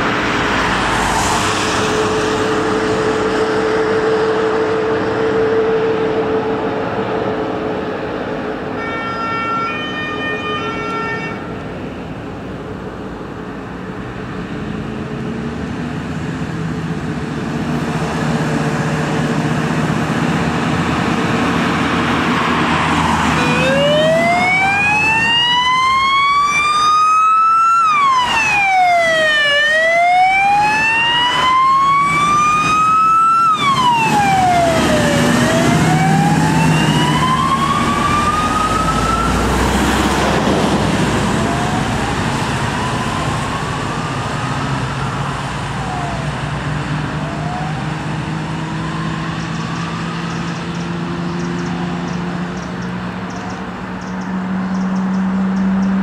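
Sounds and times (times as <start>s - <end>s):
diesel engine passing: 0.0s - 8.8s, 11.4s - 56.0s
wailing siren: 0.0s - 11.6s, 20.3s - 52.4s.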